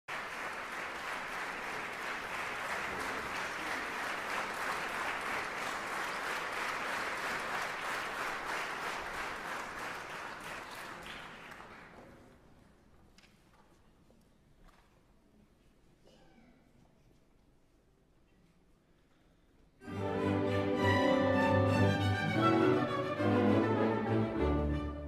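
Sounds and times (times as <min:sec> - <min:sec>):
audience applauding: 0:00.1 - 0:12.1.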